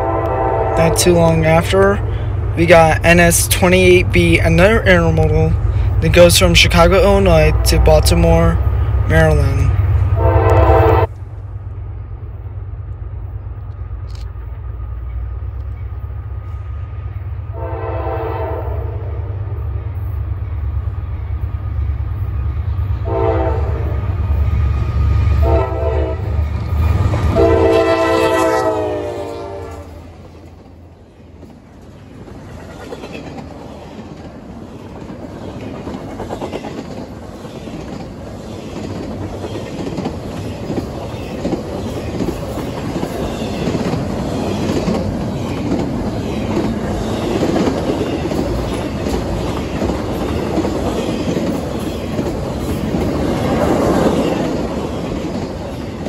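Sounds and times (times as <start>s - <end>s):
train horn blasts: 0.0s - 1.1s, 10.1s - 11.2s, 17.5s - 19.3s, 23.0s - 24.0s, 25.4s - 26.5s, 27.2s - 30.0s
locomotive engine rumble: 0.0s - 56.0s
train wheels rolling past: 0.0s - 56.0s.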